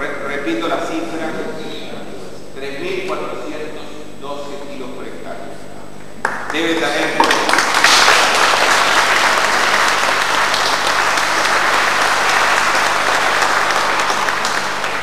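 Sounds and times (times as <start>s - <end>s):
audience applauding: 6.2s - 15.0s.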